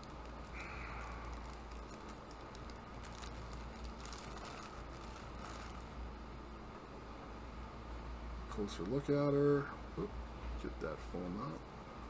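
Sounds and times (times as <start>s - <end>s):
plastic bags crinkling: 0.0s - 6.0s
air conditioner hum: 0.0s - 12.0s.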